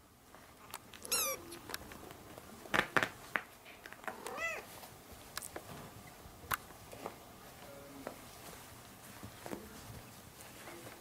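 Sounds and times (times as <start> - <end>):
kittens meowing: 1.0 - 1.6.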